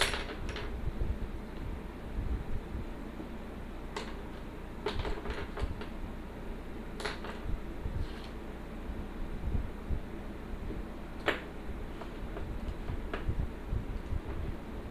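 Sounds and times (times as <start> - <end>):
low steady rumble: 0.0 - 14.9.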